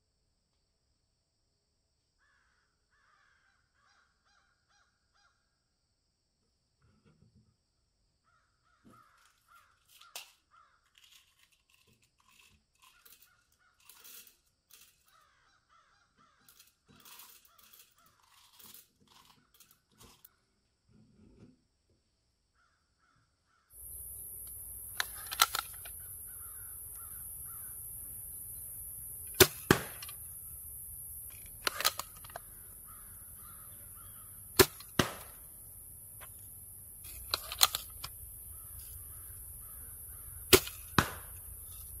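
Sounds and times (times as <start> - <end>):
sharp crack: 23.8 - 28.2, 29.1 - 42.0
air rifle pops: 23.9 - 27.6, 29.2 - 30.3, 31.3 - 33.7, 34.5 - 35.5, 37.0 - 42.0.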